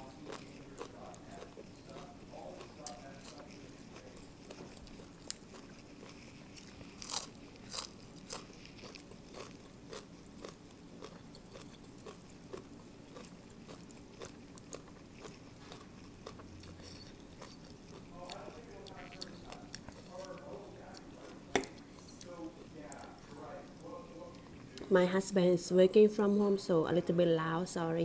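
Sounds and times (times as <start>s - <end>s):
crunching raw vegetables: 0.0s - 22.3s.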